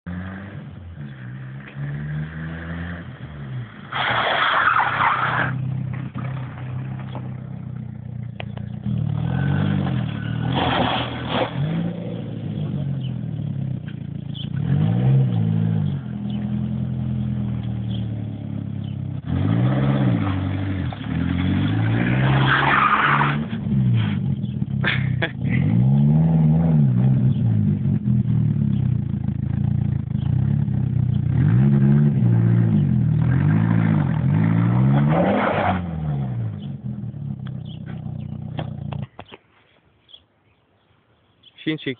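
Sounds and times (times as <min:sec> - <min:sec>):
car engine revving: 0:00.0 - 0:39.1
tyres skidding: 0:00.1 - 0:39.8.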